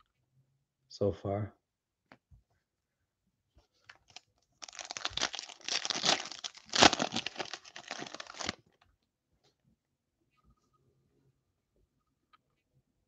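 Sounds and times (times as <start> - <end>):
wrapper crinkling: 3.9 - 8.6.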